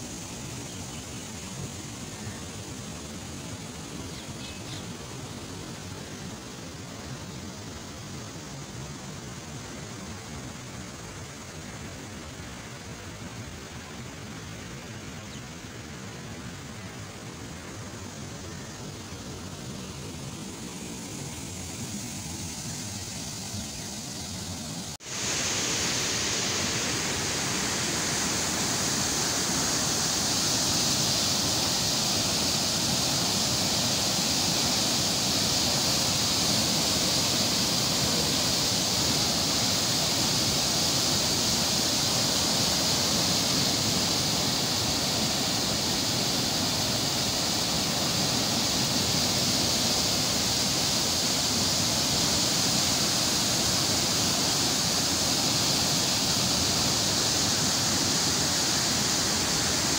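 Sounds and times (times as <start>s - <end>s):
water rushing through sluice gates: 20.1s - 59.9s.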